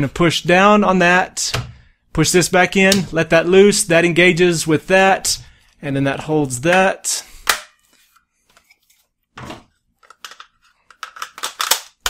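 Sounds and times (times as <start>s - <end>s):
rifle parts clicking: 10.0s - 12.0s.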